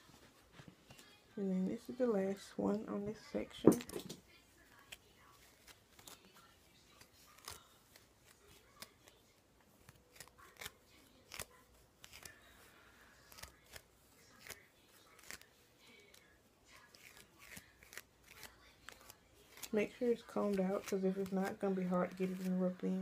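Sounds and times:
hands twisting hair rustling: 17.0 - 23.0.

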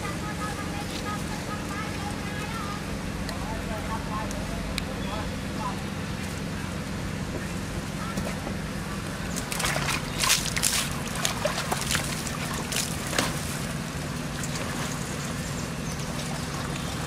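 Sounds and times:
water splashing in a tub: 9.4 - 15.4, 16.0 - 17.0.

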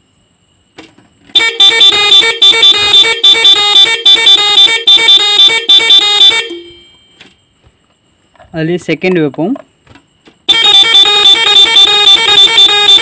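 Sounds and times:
pulsing electric horn melody: 1.4 - 7.0, 10.5 - 13.0.

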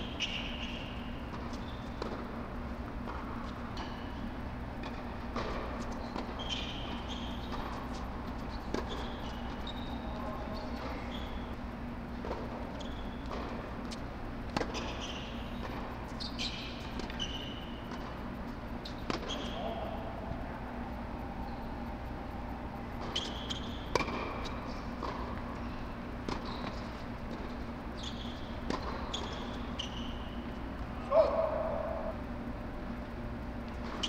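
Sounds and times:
sneakers squeaking on court: 0.0 - 2.3, 5.4 - 11.6, 12.2 - 14.0, 14.6 - 20.2, 21.4 - 31.4
steady low hum: 0.0 - 34.0.

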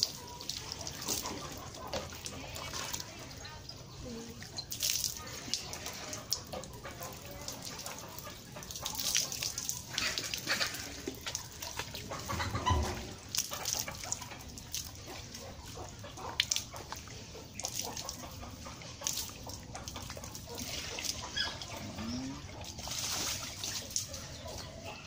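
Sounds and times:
water splashing and dripping: 0.0 - 25.0
animal calls: 20.7 - 22.7.

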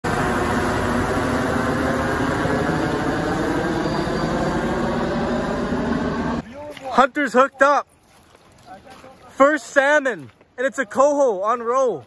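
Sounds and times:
helicopter flying overhead: 0.0 - 6.4.

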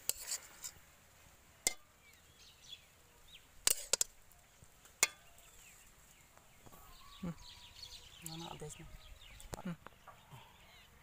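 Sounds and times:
faint bird chirps: 4.3 - 11.0
metal ladle clinking on pot: 5.0 - 5.3.

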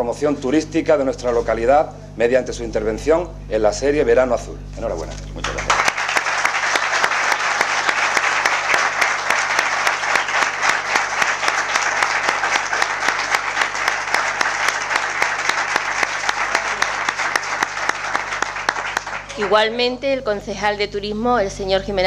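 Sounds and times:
audience applauding: 5.4 - 19.7.

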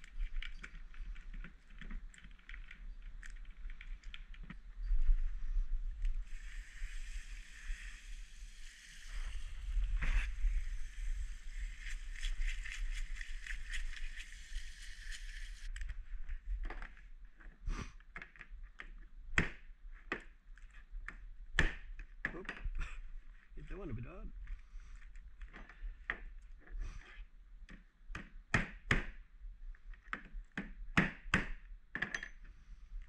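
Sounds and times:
hose spray hissing: 6.3 - 12.1
scrubbing brush scratching shell: 11.2 - 15.7.

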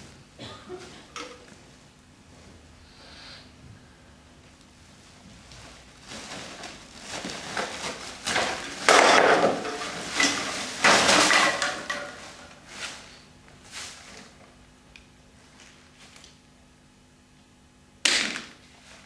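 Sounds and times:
plastic bin bag rustling: 5.7 - 14.4
rubbish clattering onto hard floor: 6.1 - 13.0.

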